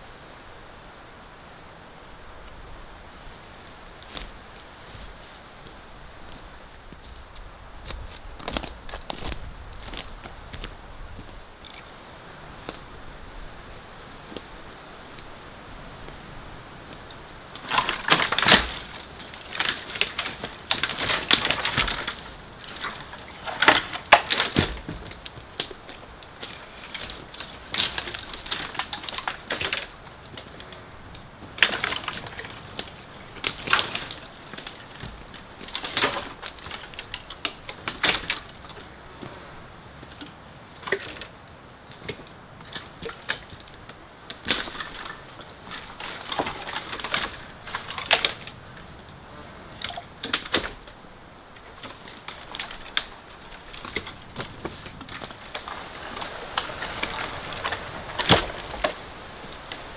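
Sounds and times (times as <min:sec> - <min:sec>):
footsteps crunching over twigs: 0:02.4 - 0:15.4, 0:16.0 - 0:49.1, 0:49.8 - 0:59.9
sticks snapping and cracking: 0:04.0 - 0:05.0, 0:06.3 - 0:11.8, 0:12.6 - 0:12.9, 0:16.9 - 0:39.3, 0:40.0 - 0:49.0, 0:49.8 - 0:51.0, 0:51.6 - 0:59.9.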